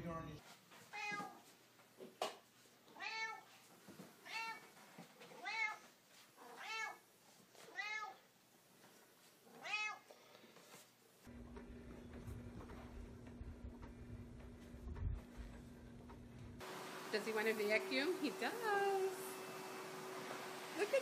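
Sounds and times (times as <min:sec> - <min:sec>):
cat meowing: 0:00.9 - 0:01.4, 0:02.9 - 0:03.5, 0:04.2 - 0:04.7, 0:05.4 - 0:05.8, 0:06.4 - 0:07.0, 0:07.7 - 0:08.2, 0:09.5 - 0:10.1.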